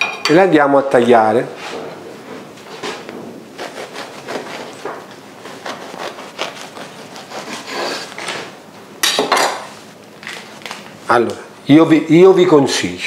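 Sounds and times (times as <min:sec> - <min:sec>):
knife sawing through bread: 0:03.6 - 0:08.4.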